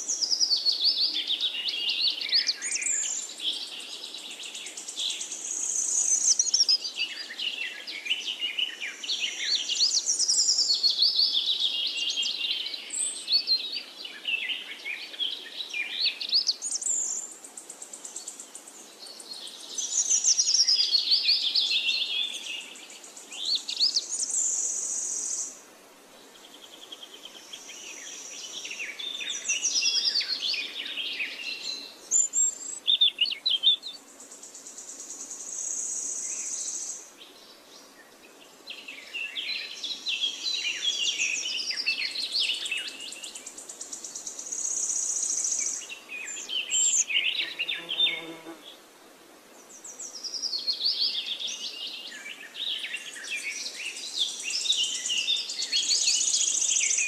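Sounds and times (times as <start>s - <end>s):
birds chirping and singing: 0.0s - 17.3s, 35.7s - 48.6s
high insect buzz: 47.3s - 48.8s.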